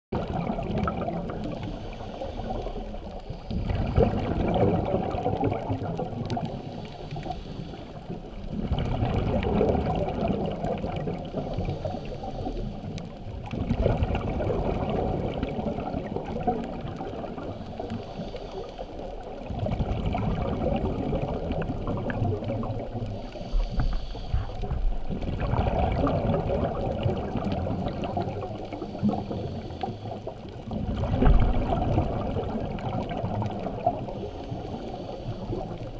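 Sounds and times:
exhaled bubbles gurgling: 0.1s - 35.9s
diver inhaling through regulator: 1.5s - 4.6s, 6.5s - 8.5s, 11.2s - 12.9s, 17.3s - 19.2s, 23.0s - 25.0s, 28.7s - 30.5s, 34.1s - 35.9s.

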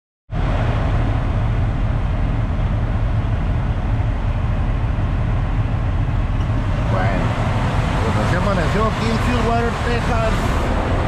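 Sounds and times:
truck diesel engine rumble: 0.3s - 11.0s.

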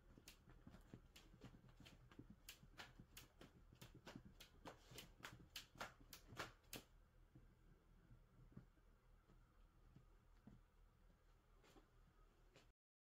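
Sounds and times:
cat claws scratching fabric: 0.0s - 6.9s.

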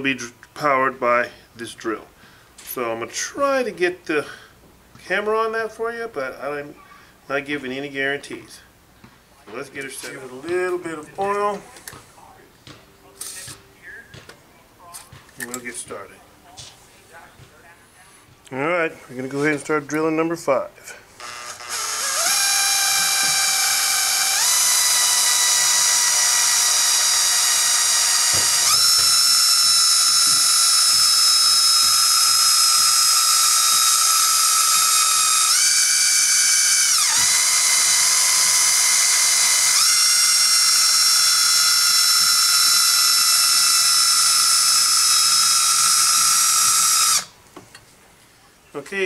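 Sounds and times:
drill whining: 21.2s - 47.4s.

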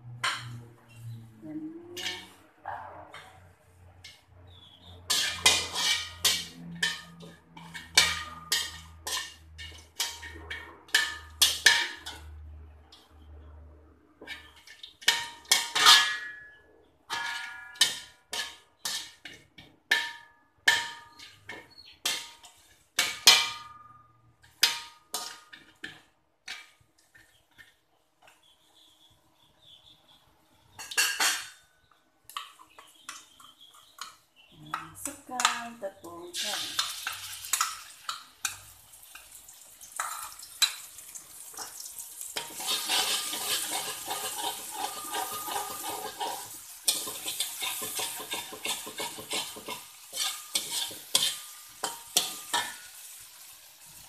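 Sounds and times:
metal spatula scraping a wok: 2.0s - 13.2s, 14.2s - 19.7s, 20.7s - 23.8s, 24.4s - 27.8s, 30.8s - 31.6s, 36.3s - 39.4s, 40.0s - 54.0s
curry paste sizzling in oil: 4.5s - 10.3s, 36.4s - 54.0s.

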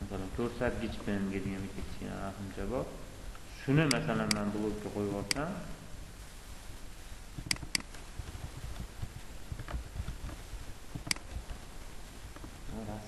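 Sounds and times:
low steady hum: 0.0s - 13.0s
computer mouse clicking: 7.4s - 8.0s, 11.0s - 11.6s.

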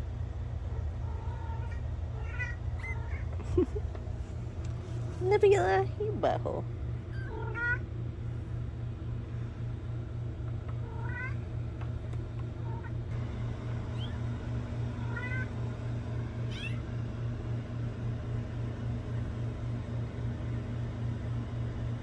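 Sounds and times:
steady low hum: 0.0s - 22.0s
kittens mewing: 0.7s - 3.9s, 7.0s - 7.9s, 10.7s - 11.5s, 16.4s - 16.9s.

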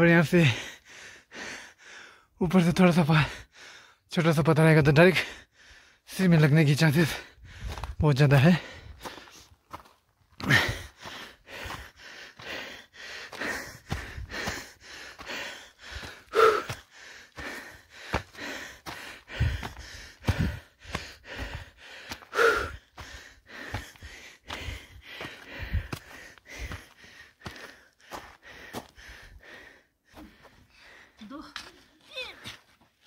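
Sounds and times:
person breathing hard and gasping: 0.4s - 2.4s, 3.2s - 4.0s, 5.2s - 6.1s, 7.1s - 7.9s, 8.6s - 9.6s, 10.4s - 31.3s
footsteps on loose stone: 8.9s - 12.6s, 13.3s - 22.3s, 22.9s - 29.0s.

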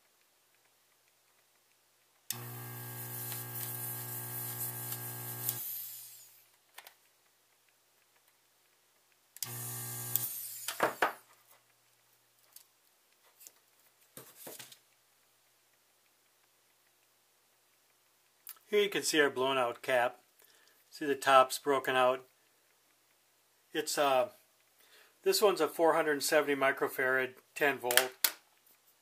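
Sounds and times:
desoldering pump motor hum: 2.3s - 6.2s, 9.4s - 10.7s.

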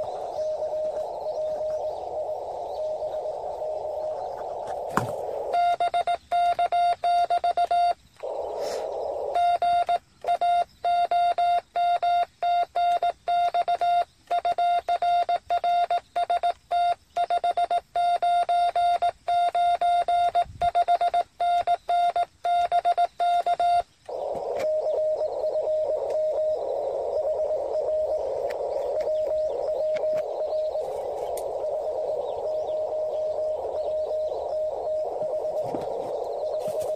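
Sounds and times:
faint radio signal: 0.0s - 6.7s, 8.2s - 10.4s, 24.1s - 36.9s
radio receiver hiss: 0.0s - 6.7s, 7.4s - 10.2s, 23.4s - 36.9s
morse code beeps: 0.0s - 36.9s.

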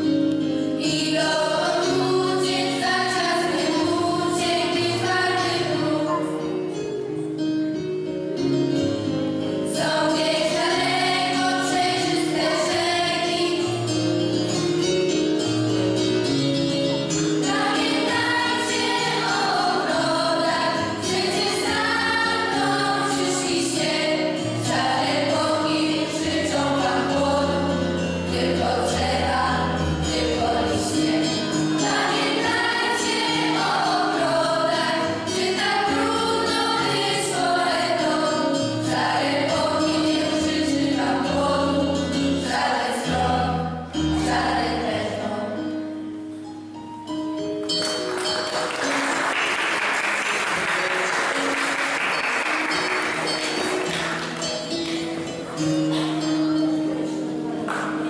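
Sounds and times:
instrumental accompaniment: 0.0s - 58.0s
girls' choir singing: 0.8s - 6.5s, 9.6s - 14.1s, 17.3s - 45.8s.

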